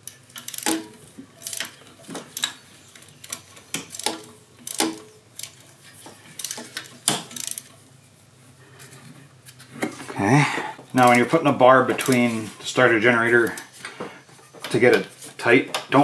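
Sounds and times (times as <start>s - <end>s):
wrench clicking on bolts: 0.0s - 2.6s, 3.2s - 5.6s, 6.4s - 7.7s.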